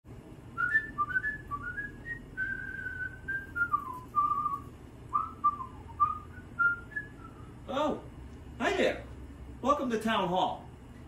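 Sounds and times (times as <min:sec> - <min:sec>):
person whistling a tune: 0:00.6 - 0:07.5.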